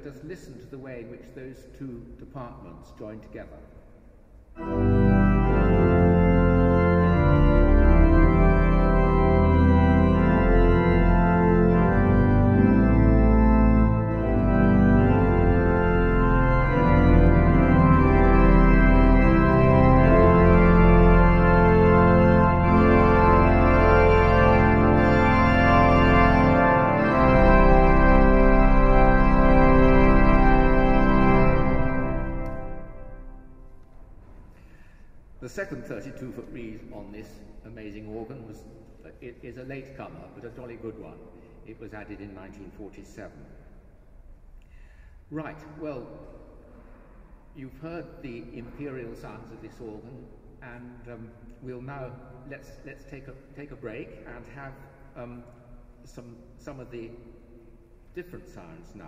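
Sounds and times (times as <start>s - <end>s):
pipe organ playing loud chords: 4.6s - 38.4s.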